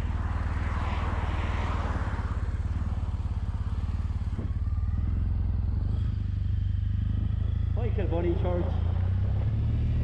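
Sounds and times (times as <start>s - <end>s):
motorcycle engine running: 2.2s - 10.0s.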